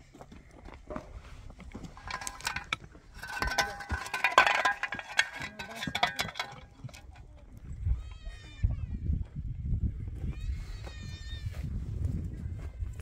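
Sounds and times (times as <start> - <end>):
shovel scraping stony soil: 1.8 - 6.7.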